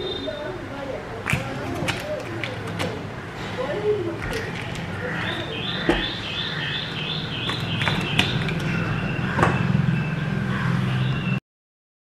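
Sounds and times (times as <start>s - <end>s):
knife cutting butter: 1.3s - 3.0s.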